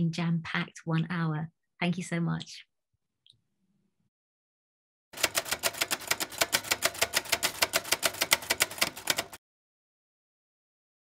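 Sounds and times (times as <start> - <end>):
rapid keyboard key clicks: 5.2 - 9.4.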